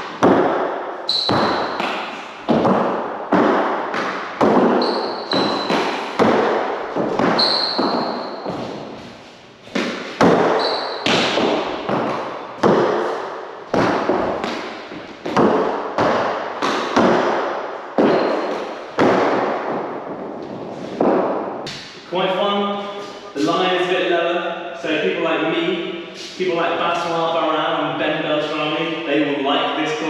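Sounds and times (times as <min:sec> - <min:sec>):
ball hits echoing off walls: 0:00.0 - 0:22.0
sneakers squeaking on floor: 0:01.0 - 0:17.4, 0:18.0 - 0:19.2.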